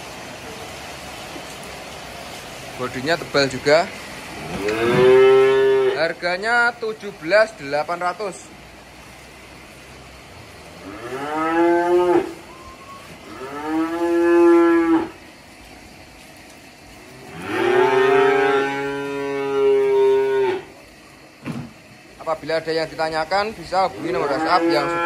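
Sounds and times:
calves mooing: 0:04.5 - 0:06.1, 0:10.8 - 0:12.4, 0:13.2 - 0:15.2, 0:17.2 - 0:20.7, 0:24.0 - 0:25.0.

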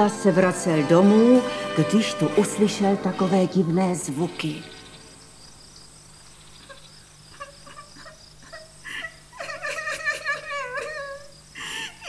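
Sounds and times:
crickets chirping: 0:00.0 - 0:12.0
girl crying: 0:07.4 - 0:12.0.

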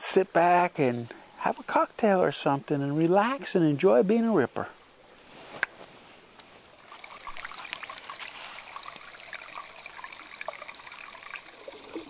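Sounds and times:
water trickling into pool: 0:06.6 - 0:12.0.

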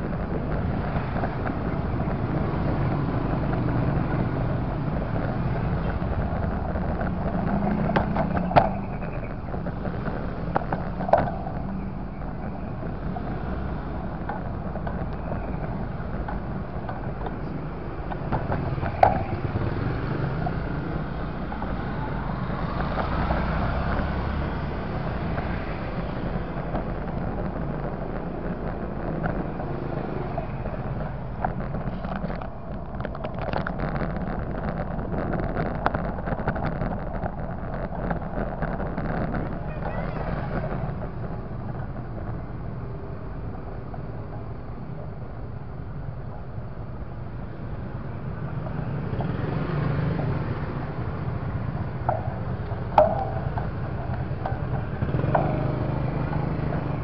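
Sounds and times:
motorcycle engine and road rumble: 0:00.0 - 0:57.0
wind noise on microphone: 0:00.0 - 0:57.0
sharp knocks: 0:52.0 - 0:56.7.

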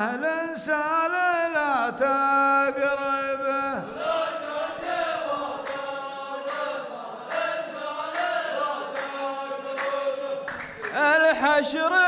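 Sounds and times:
men chanting in unison: 0:00.0 - 0:12.0
hand claps: 0:04.8 - 0:11.4.

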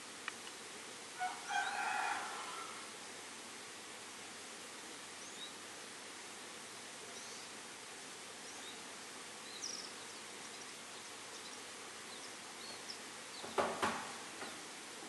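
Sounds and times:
outdoor hiss: 0:00.0 - 0:15.0
finches chirping: 0:07.1 - 0:07.6, 0:08.4 - 0:13.7
loud clattering knocks: 0:13.4 - 0:14.6.

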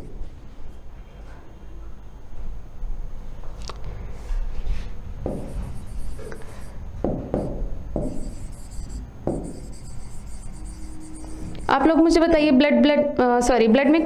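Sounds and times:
marker writing on board: 0:05.3 - 0:11.5.

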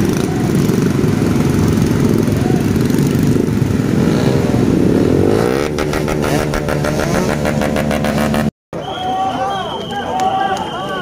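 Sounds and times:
many motorcycle engines running: 0:00.0 - 0:08.5
single motorcycle engine revving: 0:03.8 - 0:08.5.

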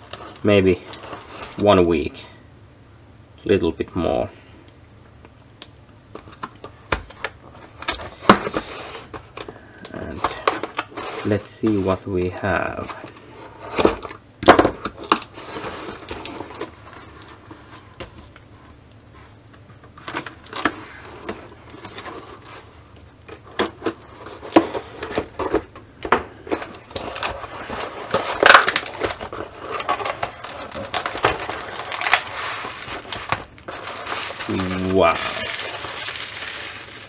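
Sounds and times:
cardboard flaps scraping and rustling: 0:10.0 - 0:14.2, 0:15.0 - 0:19.3, 0:26.5 - 0:37.0
knife cutting packing tape: 0:27.0 - 0:36.0.

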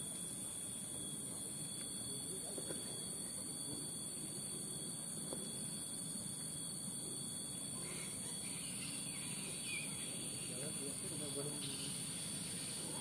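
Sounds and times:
high-pitched insect drone: 0:00.0 - 0:13.0
faint squeaky calls: 0:07.7 - 0:13.0.

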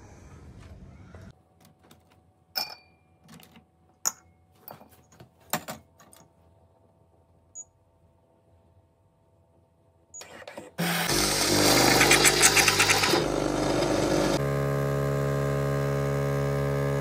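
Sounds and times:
glass clinking and tapping: 0:02.5 - 0:03.2, 0:04.0 - 0:05.0.

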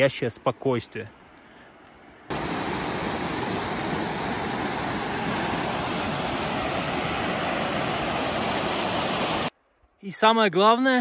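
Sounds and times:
waterfall rushing: 0:02.3 - 0:09.5.

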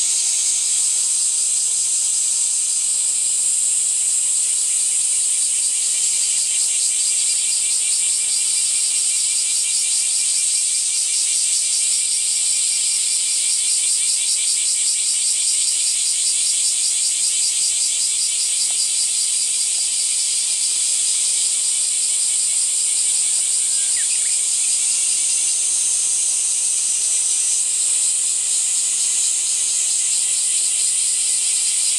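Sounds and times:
insects shrilling: 0:00.0 - 0:01.2, 0:21.3 - 0:31.9.

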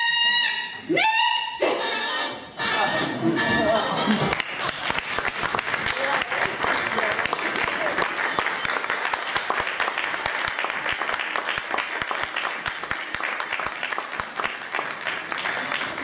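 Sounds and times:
audience applauding: 0:04.0 - 0:16.0.

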